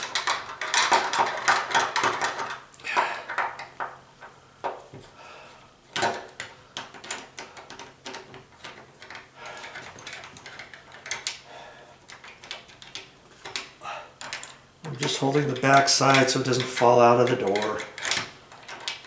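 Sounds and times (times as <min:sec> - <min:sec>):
metal clicks and scrapes: 0:12.1 - 0:19.0.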